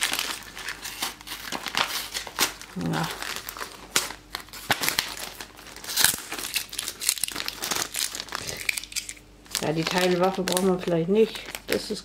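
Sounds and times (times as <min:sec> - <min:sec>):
foil bag crinkling: 0:00.0 - 0:12.0.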